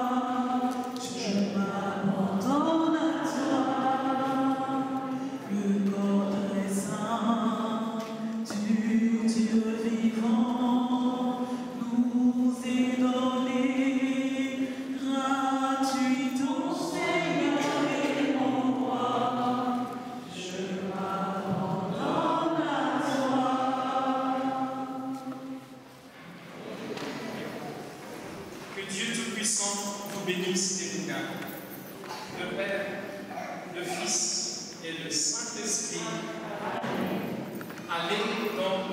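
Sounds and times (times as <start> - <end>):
choir singing a slow hymn: 0.0 - 27.9, 32.8 - 38.9.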